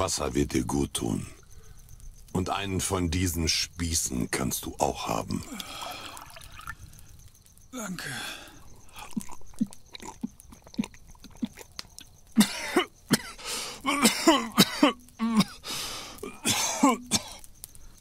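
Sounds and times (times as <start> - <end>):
man swallowing: 5.4 - 6.8, 8.6 - 15.6
man coughing hard: 12.4 - 15.6, 16.2 - 17.4.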